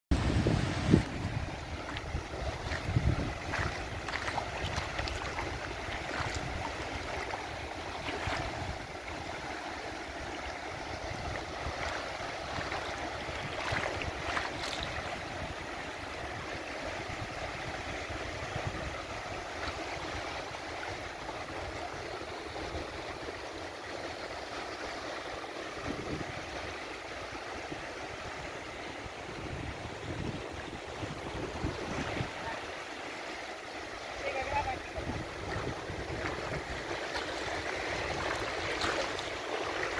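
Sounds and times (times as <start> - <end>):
wind buffeting microphone: 0.1 - 9.0, 10.8 - 16.4, 25.8 - 26.6, 28.6 - 32.6, 34.7 - 39.9
sea surf washing over sand: 0.1 - 39.9.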